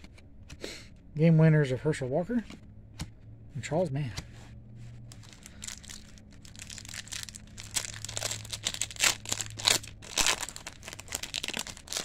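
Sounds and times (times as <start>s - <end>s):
foil wrapper crinkling and tearing: 5.1s - 12.0s.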